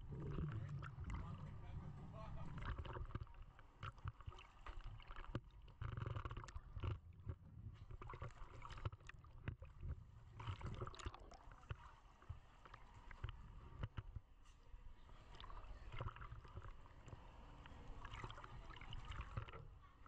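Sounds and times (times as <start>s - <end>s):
low underwater rumbling: 0.0s - 14.2s.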